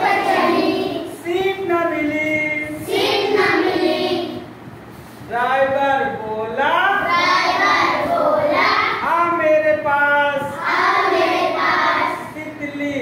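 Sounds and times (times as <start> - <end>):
children singing in unison: 0.0 - 1.1, 2.8 - 4.4, 10.6 - 12.3.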